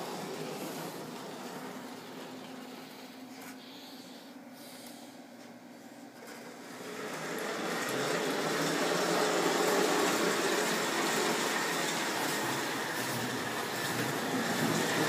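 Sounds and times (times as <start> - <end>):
wheels rolling on rails: 0.0 - 2.6, 6.2 - 15.0.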